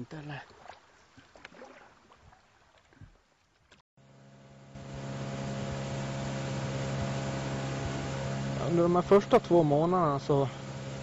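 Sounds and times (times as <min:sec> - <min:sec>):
engine humming: 0:04.0 - 0:11.0.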